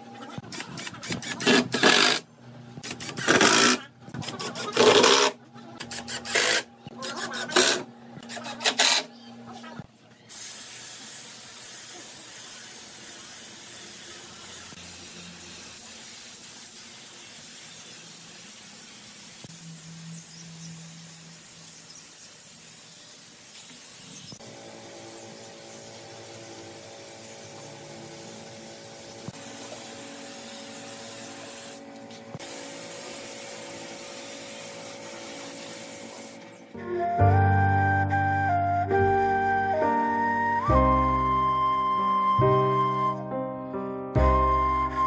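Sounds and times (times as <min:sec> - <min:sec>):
spray gun hissing: 0:10.3 - 0:31.8, 0:32.4 - 0:36.4.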